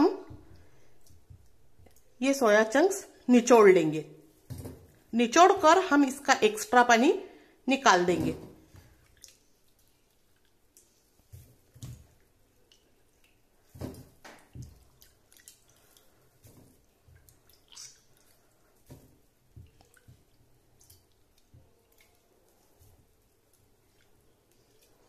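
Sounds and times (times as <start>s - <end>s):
squishing by hand: 8.2s - 25.0s
water dripping into bowl: 8.7s - 11.0s, 14.1s - 22.6s.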